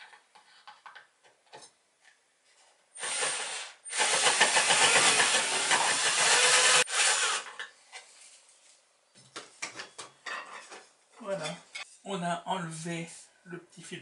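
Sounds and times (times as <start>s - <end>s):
cordless drill boring wood: 3.0s - 7.6s.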